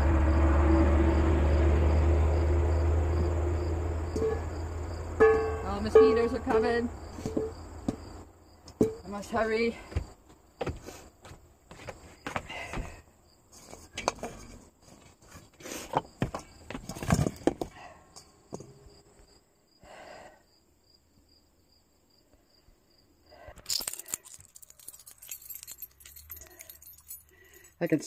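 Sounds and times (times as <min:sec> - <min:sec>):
knocks and rustling from handling: 0:07.2 - 0:08.1, 0:13.6 - 0:17.7
metal keys jangling: 0:23.6 - 0:27.8.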